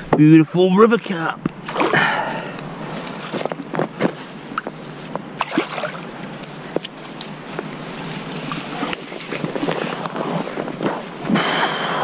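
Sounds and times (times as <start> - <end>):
small splashes: 1.6 - 2.2, 5.4 - 6.1
water sloshing and dripping: 5.4 - 6.5.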